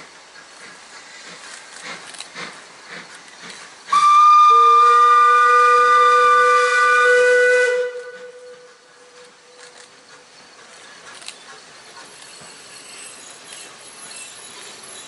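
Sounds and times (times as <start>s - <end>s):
escaping steam hiss: 0.0s - 15.0s
high steam whistle: 3.9s - 9.6s
low steam whistle: 3.9s - 9.6s.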